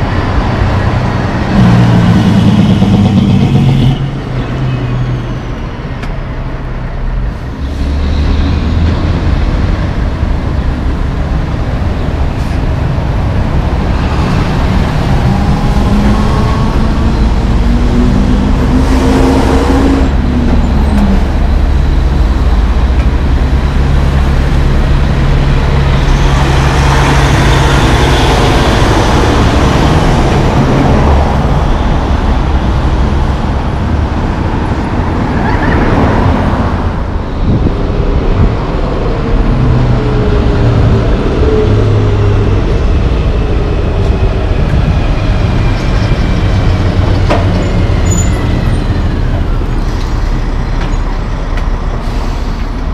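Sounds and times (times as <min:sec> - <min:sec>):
trucks and cars passing: 0:00.0 - 0:52.9
tyres and engine rushing past: 0:00.0 - 0:52.9
engine accelerating: 0:07.7 - 0:36.9.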